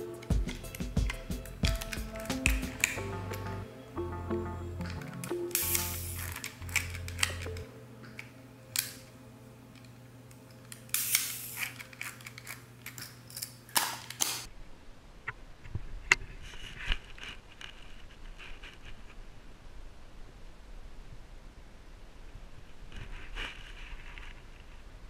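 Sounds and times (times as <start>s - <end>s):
low steady hum: 0.0s - 13.8s
outdoor ambience: 0.0s - 25.0s
film scraping in camera: 5.0s - 7.6s
camera clicks: 5.2s - 7.6s.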